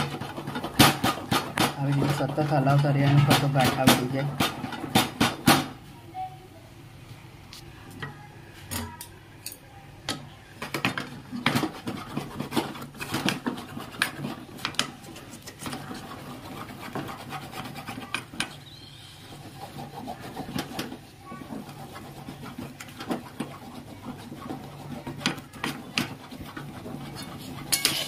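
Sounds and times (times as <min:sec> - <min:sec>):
spoon scraping a cooking pot: 0:10.6 - 0:28.0.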